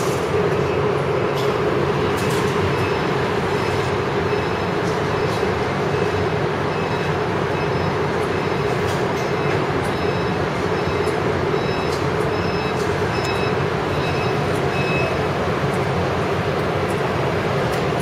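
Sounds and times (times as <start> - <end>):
heavy machinery hum and rumble: 0.0 - 18.0
faint high beeps: 9.4 - 15.2.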